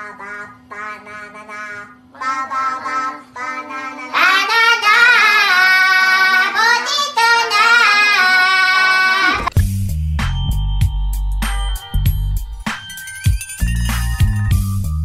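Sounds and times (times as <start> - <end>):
group singing in squeaky voices: 0.4 - 9.5.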